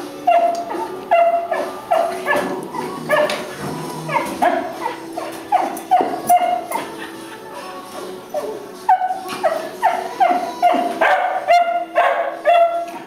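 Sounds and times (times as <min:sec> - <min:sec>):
music: 0:00.0 - 0:13.0
small dogs yipping: 0:00.2 - 0:07.2, 0:08.3 - 0:13.0.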